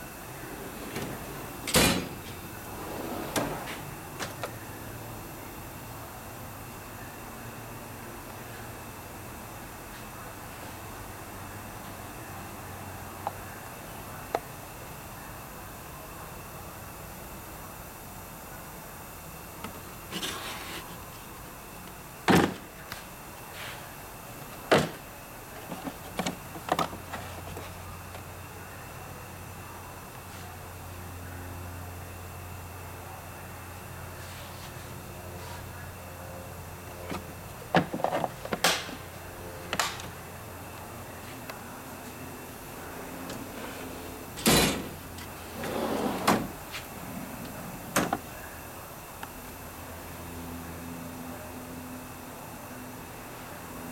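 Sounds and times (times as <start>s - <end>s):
metal drawer sliding: 0.4s - 4.5s, 43.3s - 48.2s
drawer clacking shut: 0.5s - 4.5s, 22.3s - 22.6s, 24.7s - 25.0s, 44.4s - 45.0s, 45.6s - 46.6s, 47.9s - 48.2s
sharp knocks in metal drawer: 0.9s - 2.4s, 44.4s - 45.0s.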